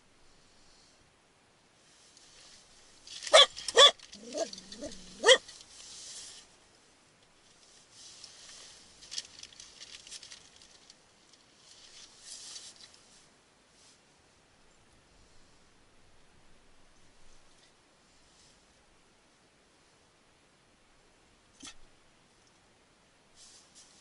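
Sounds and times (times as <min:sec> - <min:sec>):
rustling and clicking: 0:02.1 - 0:06.5, 0:07.2 - 0:13.1
small dog barking: 0:03.3 - 0:05.5
dog whining: 0:03.4 - 0:05.4.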